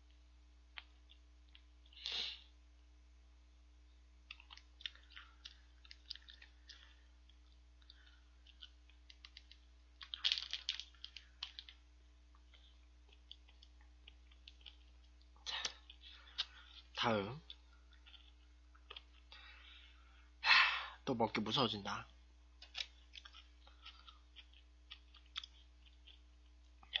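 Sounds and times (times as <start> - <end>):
faint small clicks and smacks: 0.0 - 2.1, 4.2 - 19.5, 22.6 - 27.0.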